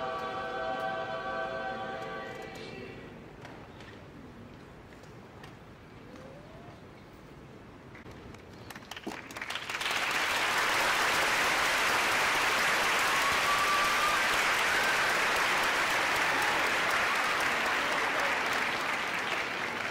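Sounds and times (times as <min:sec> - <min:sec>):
audience applauding: 0:08.6 - 0:19.9.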